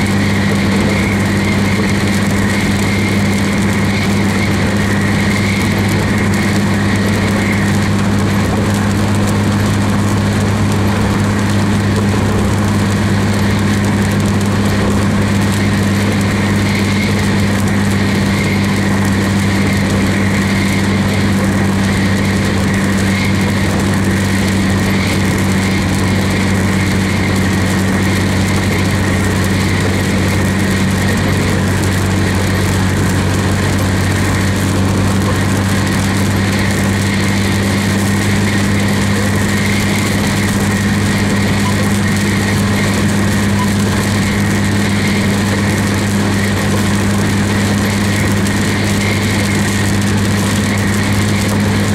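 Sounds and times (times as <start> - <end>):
low engine drone: 0.0 - 51.9
tyre noise on wet road: 0.0 - 51.9.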